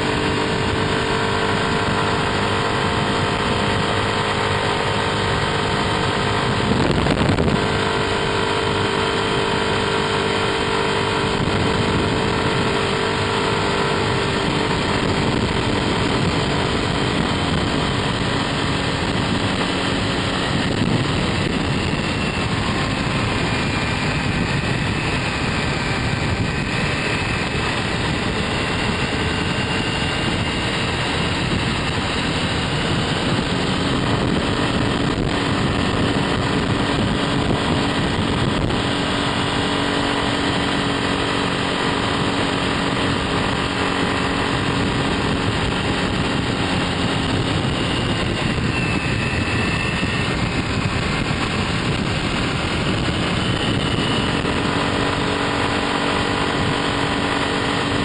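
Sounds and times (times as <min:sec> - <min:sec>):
scooter engine droning: 0:00.0 - 0:58.0
wind and road noise: 0:00.0 - 0:58.0.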